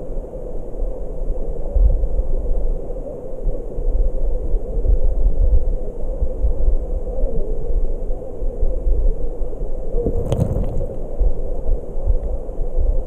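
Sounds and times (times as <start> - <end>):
muffled underwater stream rumble: 10.0 - 12.2.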